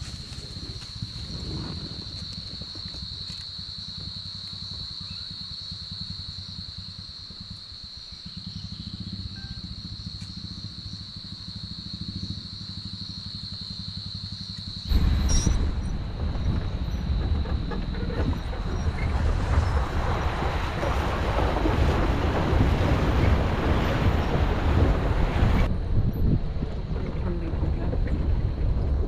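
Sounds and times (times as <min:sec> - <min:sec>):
high insect drone: 0:00.0 - 0:20.3
vehicle engine running: 0:08.2 - 0:21.4.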